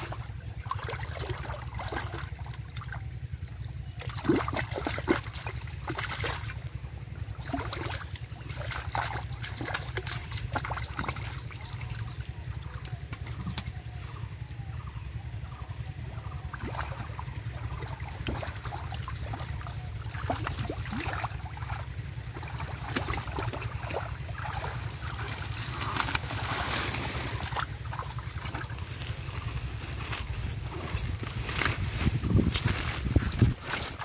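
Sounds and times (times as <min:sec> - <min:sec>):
sharp splashes: 0:00.0 - 0:03.1, 0:04.0 - 0:13.7, 0:16.5 - 0:29.5
feet wading: 0:00.0 - 0:13.9, 0:16.5 - 0:34.0
hands sloshing through muddy water: 0:00.0 - 0:34.0
steady low rumble: 0:00.0 - 0:34.0.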